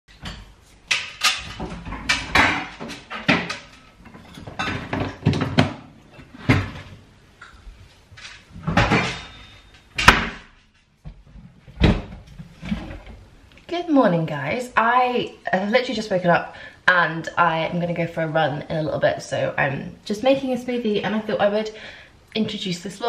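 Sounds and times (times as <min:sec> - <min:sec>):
cupboard doors opening and closing: 0:00.2 - 0:07.0, 0:08.3 - 0:13.3.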